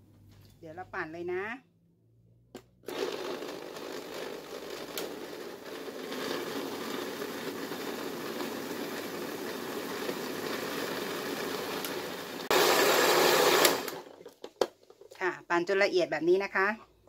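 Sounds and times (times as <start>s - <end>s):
electric blender running: 2.8s - 14.1s.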